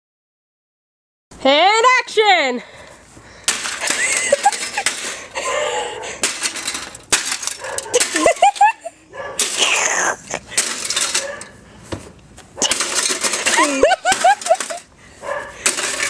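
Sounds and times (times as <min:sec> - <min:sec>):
metal case being smashed: 0:03.5 - 0:05.2, 0:06.2 - 0:08.8, 0:10.5 - 0:11.5, 0:12.6 - 0:14.9, 0:15.6 - 0:16.0
loose metal panels rattling: 0:03.5 - 0:05.4, 0:06.2 - 0:09.6, 0:10.5 - 0:11.6, 0:12.6 - 0:14.9, 0:15.6 - 0:16.0.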